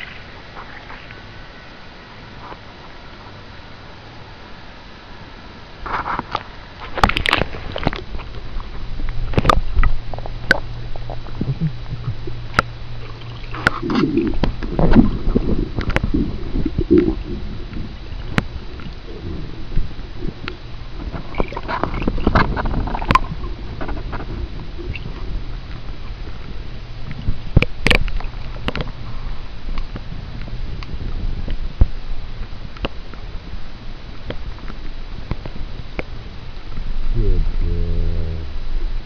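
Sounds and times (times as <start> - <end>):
low hum: 0.0 - 39.0
muffled underwater gurgling and sloshing: 0.0 - 39.0.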